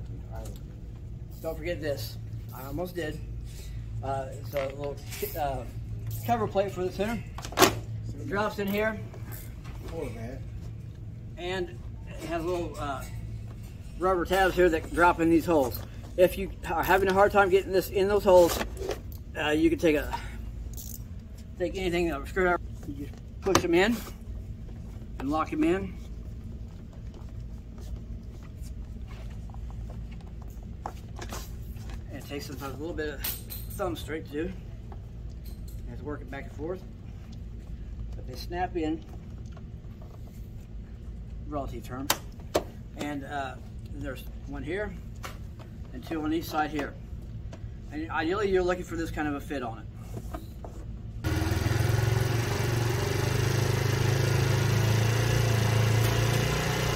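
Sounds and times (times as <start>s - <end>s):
steady low hum: 0.0s - 55.9s
scooter engine idling: 51.2s - 56.9s.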